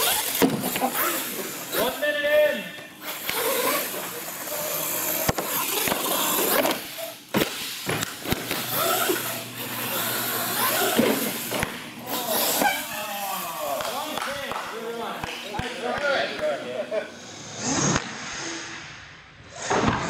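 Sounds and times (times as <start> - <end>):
toy truck motor whine: 0.0 - 1.9, 3.0 - 7.2, 8.6 - 13.8.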